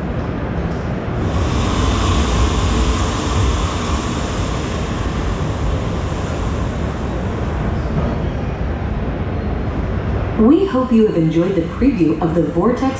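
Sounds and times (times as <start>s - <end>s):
deep rumble: 0.0s - 10.3s
steady rushing noise: 0.0s - 10.4s.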